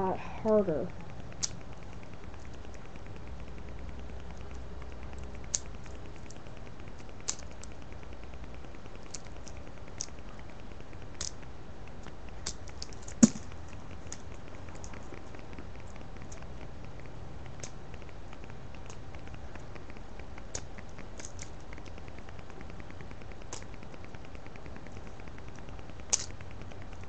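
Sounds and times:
low hum: 0:00.0 - 0:27.0
plastic toy clicks and snaps: 0:26.1 - 0:26.4.

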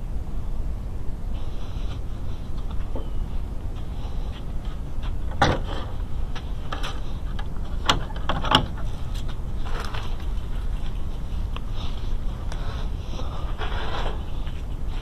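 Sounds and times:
steady low rumble: 0:00.0 - 0:15.0
wooden gate knocks and clicks: 0:05.3 - 0:05.9, 0:06.7 - 0:08.9
soft gate scrape: 0:11.8 - 0:15.0.

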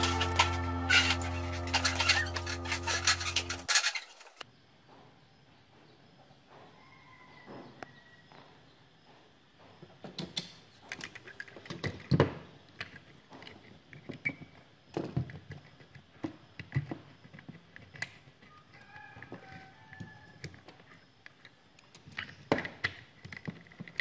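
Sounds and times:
screwdriver clicking and scraping: 0:00.0 - 0:04.4.

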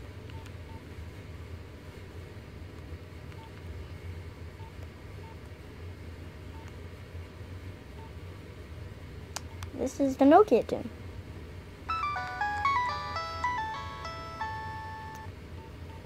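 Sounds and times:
low steady hum: 0:11.6 - 0:16.0
phone keypad beeps: 0:11.9 - 0:15.3.

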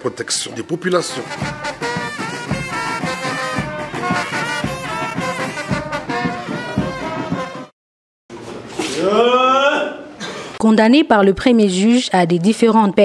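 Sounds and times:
brass band horns: 0:00.9 - 0:07.7
low drum beat: 0:01.0 - 0:07.7.

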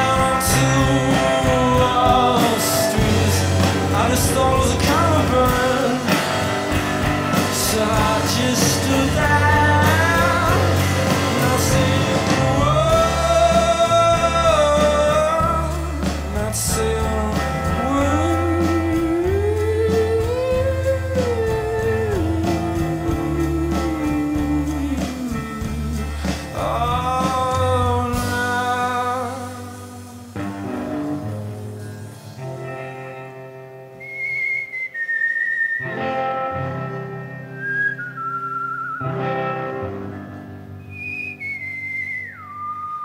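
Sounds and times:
wordless vocal melody: 0:00.0 - 0:32.8
low bass: 0:00.0 - 0:33.1
drum kit with cymbals: 0:00.0 - 0:33.3
electric guitar: 0:00.0 - 0:43.0.

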